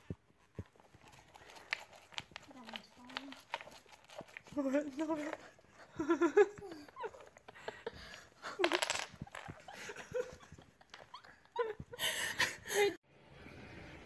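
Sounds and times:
person talking: 0:04.4 - 0:05.6
person laughing: 0:05.8 - 0:13.0
wooden blocks clicking: 0:07.1 - 0:09.8.

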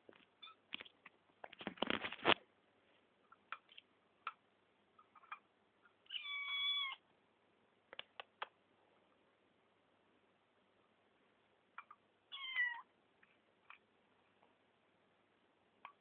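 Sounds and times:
kitten meowing: 0:06.1 - 0:07.0, 0:12.3 - 0:12.9.

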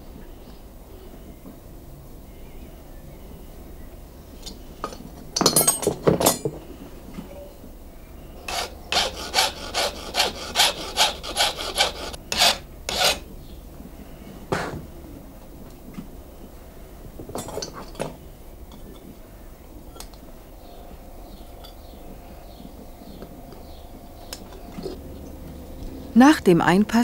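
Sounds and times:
file rasping on metal: 0:08.5 - 0:13.2.

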